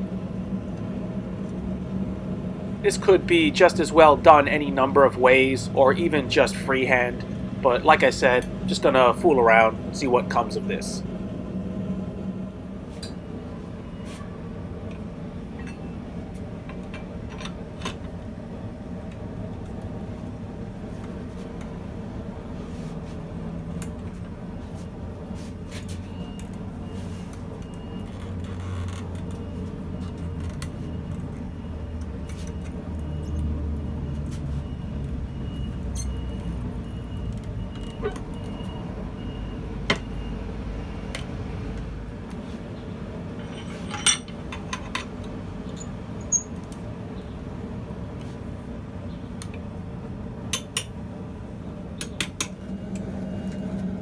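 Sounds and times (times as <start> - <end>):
metal-on-metal clinks: 43.4 - 45.0.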